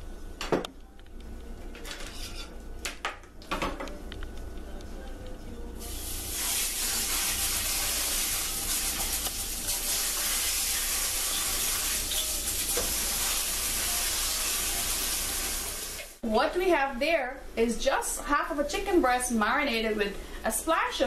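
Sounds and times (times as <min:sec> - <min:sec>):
chicken sizzling in a pan: 0:05.8 - 0:16.2.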